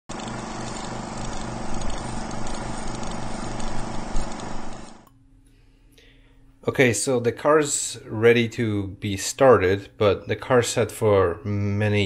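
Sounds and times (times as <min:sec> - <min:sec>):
engine running with rhythmic lope: 0:00.1 - 0:05.0.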